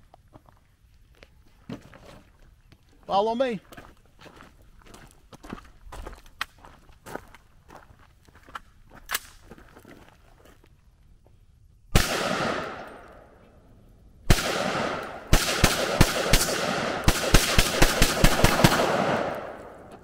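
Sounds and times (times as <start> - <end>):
rifle shots with rolling echo: 11.9 - 13.4, 14.2 - 20.0.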